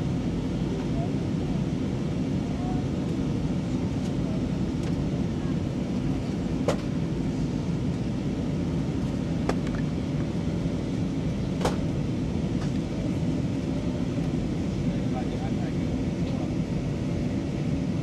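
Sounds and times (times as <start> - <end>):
airplane cabin rumble: 0.0 - 18.0.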